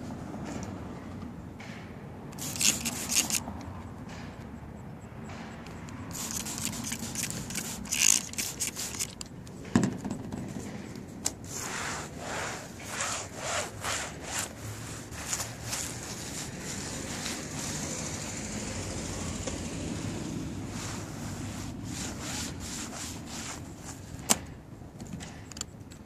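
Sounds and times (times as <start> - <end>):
spray bottle hissing: 2.4 - 3.4, 6.1 - 9.2
clay towel scraping car paint: 2.4 - 3.5, 6.1 - 9.2, 10.0 - 18.8, 20.0 - 24.3.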